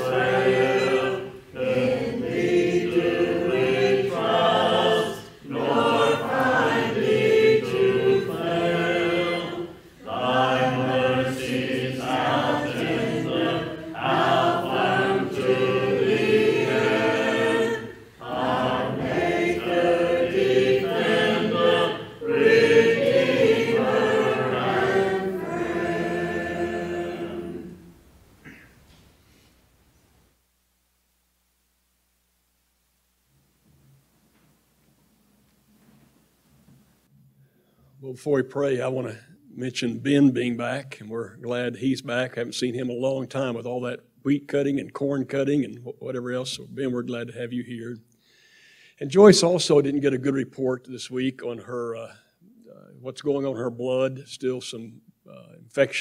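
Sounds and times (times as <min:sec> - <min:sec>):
congregation singing a cappella: 0:00.0 - 0:28.6.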